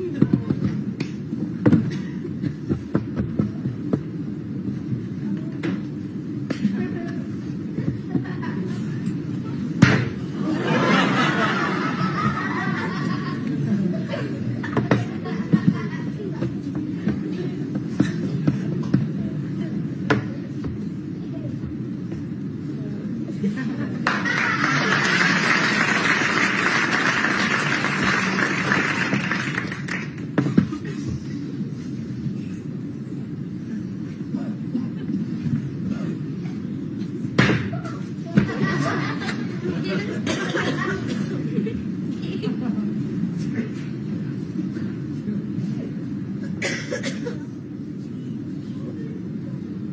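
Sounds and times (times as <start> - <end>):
low steady hum: 0.0 - 49.9
audience laughing: 10.3 - 16.5, 23.4 - 29.7, 38.4 - 42.8
audience applauding: 24.0 - 30.3.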